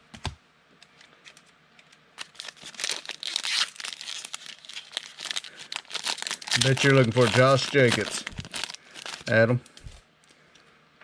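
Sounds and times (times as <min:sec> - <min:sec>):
foil wrapper tearing and crinkling: 0:02.2 - 0:10.0.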